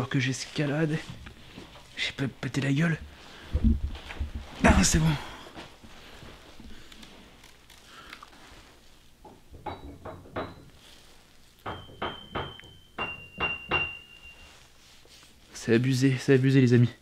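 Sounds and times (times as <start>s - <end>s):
piano notes: 11.7s - 14.6s.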